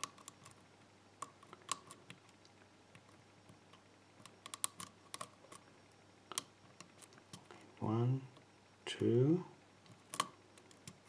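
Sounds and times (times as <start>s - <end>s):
lock pick clicking pins: 9.9s - 11.0s.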